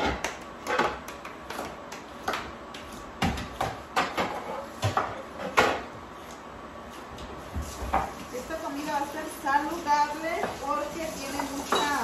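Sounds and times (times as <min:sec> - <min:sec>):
kitchen knocks and clicks: 0:00.0 - 0:05.9.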